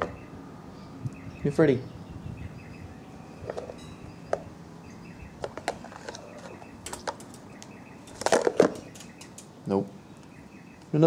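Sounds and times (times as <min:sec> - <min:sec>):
beaks tapping on glass: 0:05.5 - 0:09.6.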